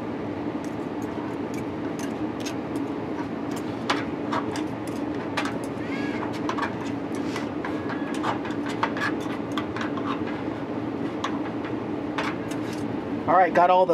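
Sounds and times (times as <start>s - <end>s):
steady low hum: 0.0s - 13.9s
forks scraping on plastic board: 3.5s - 11.4s.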